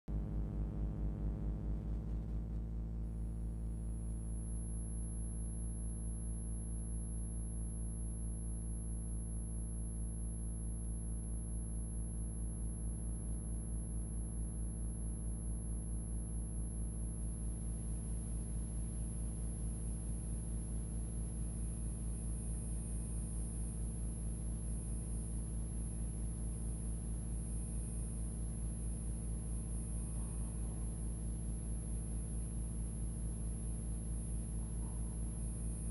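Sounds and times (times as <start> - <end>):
pulsing electronic drone: 17.9 - 35.9.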